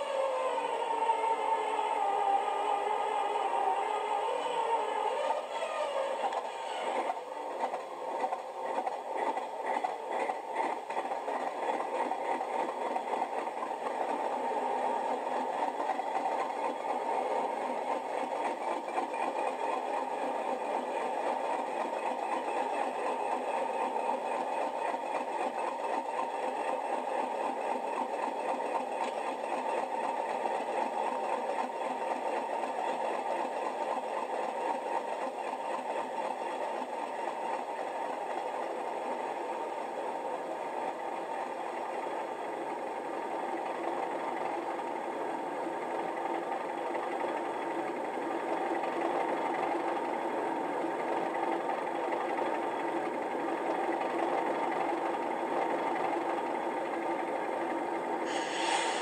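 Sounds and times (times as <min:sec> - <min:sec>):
diesel engine idling through small speaker: 0:57.7 - 0:59.0.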